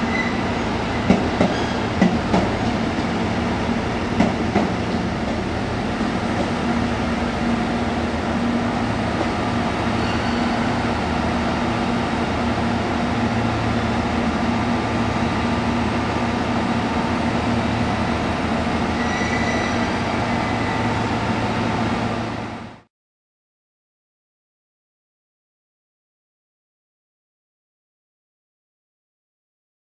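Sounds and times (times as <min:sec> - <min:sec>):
train moving out: 0:00.0 - 0:22.9.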